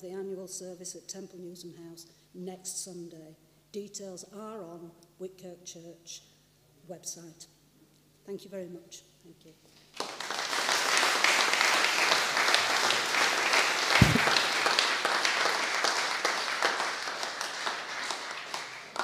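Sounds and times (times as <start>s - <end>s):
audience applauding: 10.0s - 19.0s
low thump: 14.0s - 14.4s.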